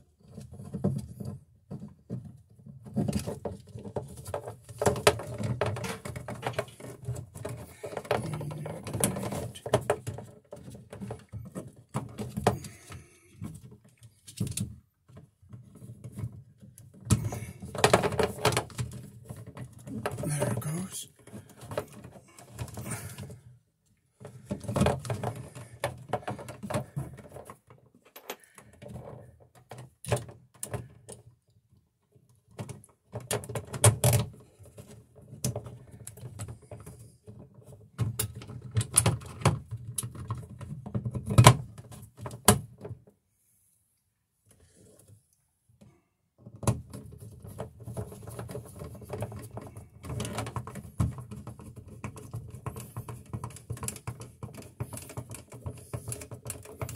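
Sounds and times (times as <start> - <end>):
plastic clicking and knocking: 0.2 - 20.2, 45.8 - 56.9.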